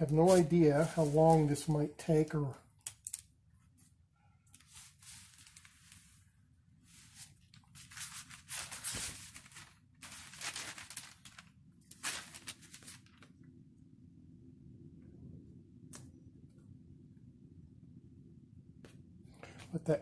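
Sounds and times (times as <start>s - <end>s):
paper rustling and crinkling: 0.0s - 1.8s, 4.6s - 6.3s, 6.9s - 13.4s
low steady hum: 0.0s - 20.0s.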